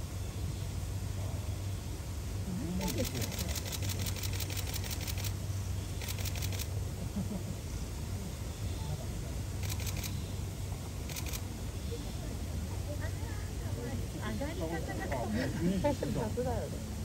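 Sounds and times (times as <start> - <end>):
steady low hum: 0.0 - 17.0
camera shutter clicks: 2.8 - 5.4, 6.0 - 6.7, 9.6 - 10.2, 11.1 - 11.4.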